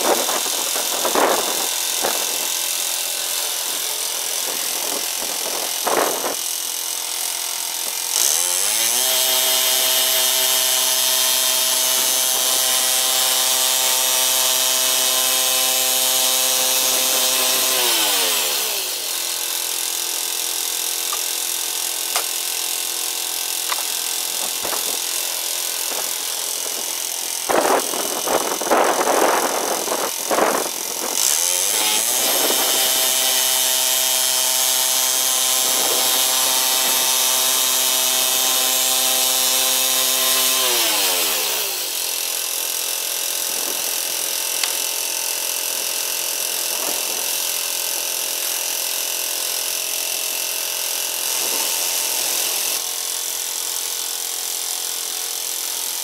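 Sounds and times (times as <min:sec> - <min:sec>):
bandsaw mill petrol engine: 0:00.0 - 0:56.0
saw cutting through log: 0:00.0 - 0:56.0.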